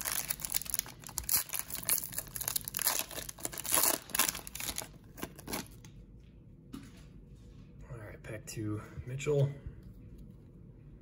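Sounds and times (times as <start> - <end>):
foil wrapper crinkling and tearing: 0.0 - 5.8.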